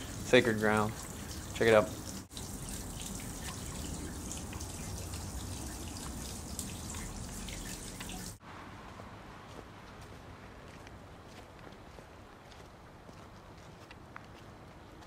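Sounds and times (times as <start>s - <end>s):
water trickling into stone basin: 0.0s - 8.4s.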